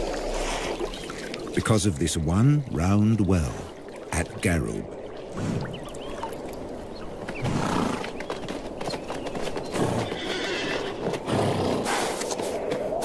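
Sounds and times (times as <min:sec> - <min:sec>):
hooves clattering: 0:06.6 - 0:13.0
horse calls: 0:09.8 - 0:12.1.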